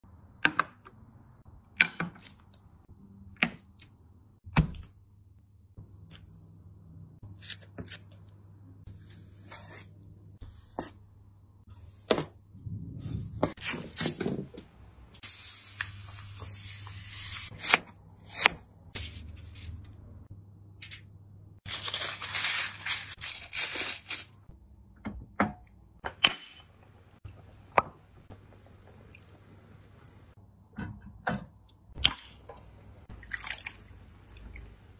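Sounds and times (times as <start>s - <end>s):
aluminium foil crinkling: 21.6s - 24.4s.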